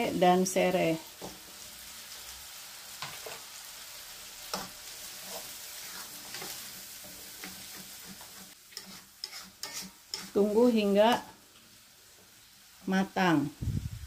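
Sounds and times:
paste sizzling in oil: 0.0 - 13.6
spatula scraping a pan: 4.4 - 11.4.

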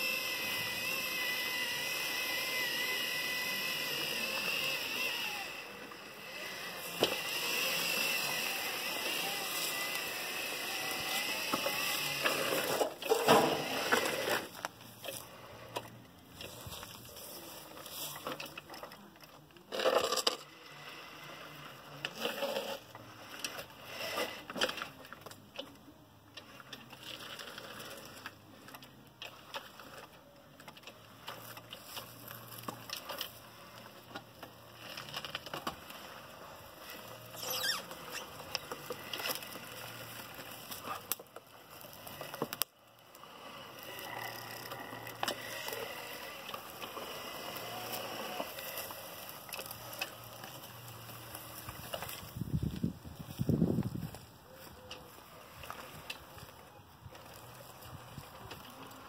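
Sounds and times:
rubber tracks rattling and crunching: 47.7 - 54.4.

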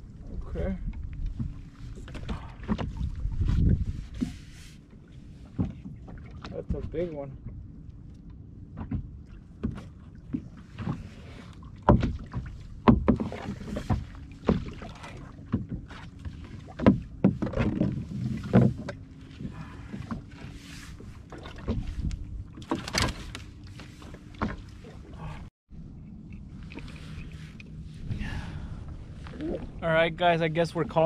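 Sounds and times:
water slapping hull: 0.0 - 31.0
knocks and thumps on boat: 0.3 - 25.5.

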